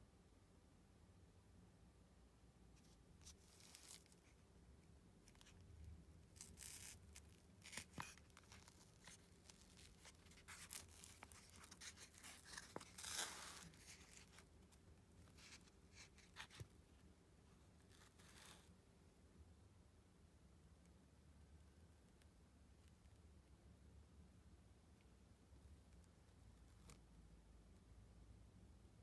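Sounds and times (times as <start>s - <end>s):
cardboard tube crackling: 2.8s - 4.4s, 5.2s - 16.7s.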